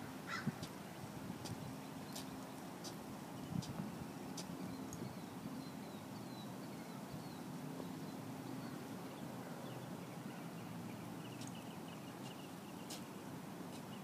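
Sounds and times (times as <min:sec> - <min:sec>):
birds chirping: 0:03.4 - 0:14.0.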